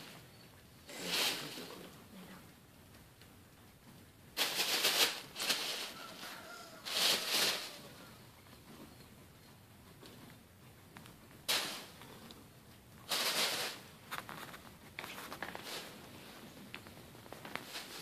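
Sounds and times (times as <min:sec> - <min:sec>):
tissue paper rustling: 0:04.4 - 0:08.0.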